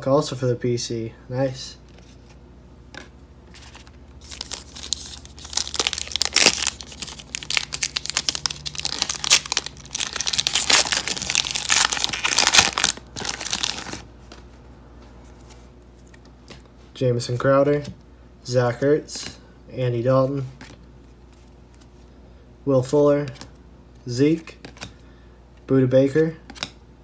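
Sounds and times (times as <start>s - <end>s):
foil wrapper tearing and crinkling: 4.2s - 14.0s.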